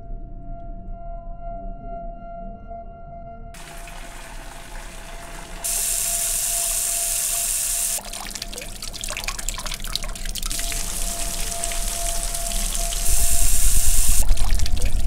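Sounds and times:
water gushing from a tap: 0:03.6 - 0:15.0
water splashing into metal bucket: 0:03.6 - 0:15.0
steady held tone: 0:10.6 - 0:14.5.

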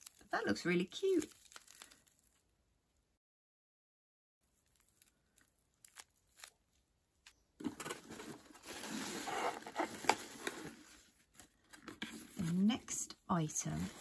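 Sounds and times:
tissue paper rustling: 0:07.6 - 0:12.7.

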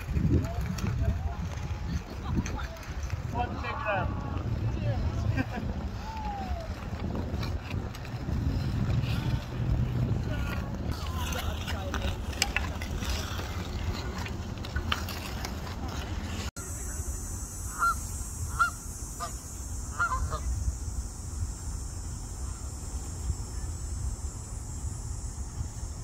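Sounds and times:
steady low rumble: 0:00.0 - 0:26.0
geese honking: 0:17.7 - 0:20.5.

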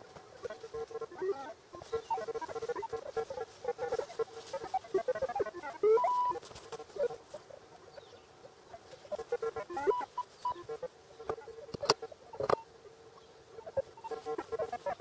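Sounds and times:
metal detector warbling tones: 0:05.9 - 0:06.4, 0:09.8 - 0:10.6.

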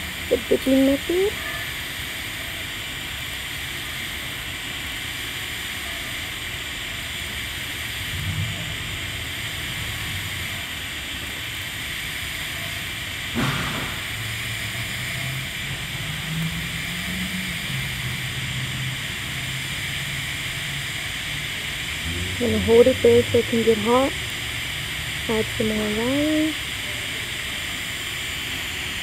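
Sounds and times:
welding arc hiss: 0:00.0 - 0:29.0
low hum: 0:13.3 - 0:29.0.

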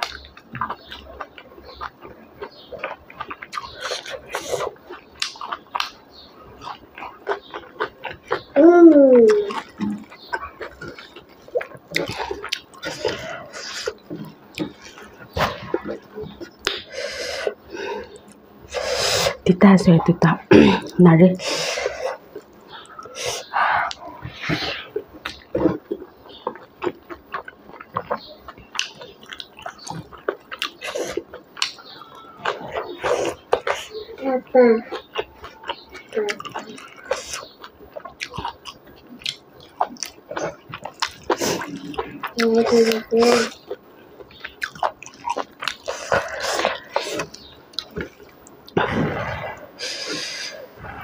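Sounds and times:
close chewing: 0:00.0 - 0:19.4, 0:20.0 - 0:51.0
mouth clicks: 0:20.8 - 0:34.2.

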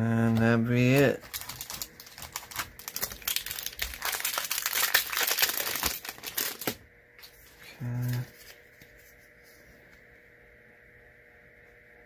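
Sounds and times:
foil wrapper crinkling: 0:00.4 - 0:06.8.

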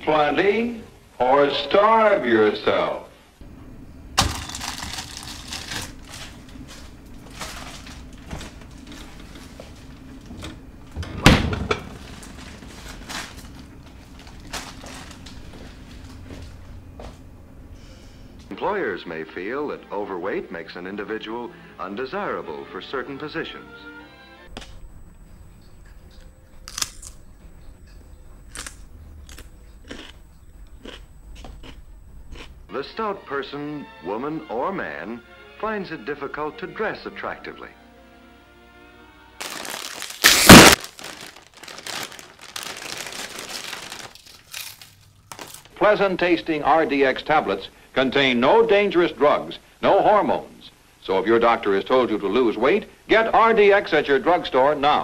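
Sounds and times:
steady low hum: 0:03.1 - 0:18.6, 0:24.5 - 0:32.8
rustling and handling: 0:04.2 - 0:10.7, 0:11.9 - 0:16.8, 0:39.4 - 0:45.8
loud thump of door shutting: 0:11.0 - 0:11.9.

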